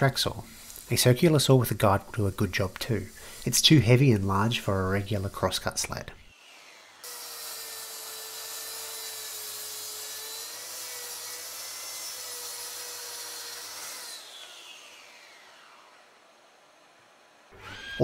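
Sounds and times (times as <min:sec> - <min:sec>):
circular saw cutting wood: 0:00.0 - 0:18.0
saw blade spinning down: 0:06.3 - 0:16.8, 0:17.6 - 0:18.0.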